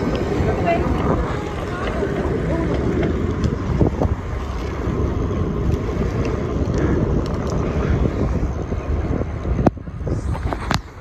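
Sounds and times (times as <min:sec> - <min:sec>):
bicycle tyres rolling on asphalt: 0:00.0 - 0:11.0
wind buffeting microphone: 0:00.0 - 0:11.0.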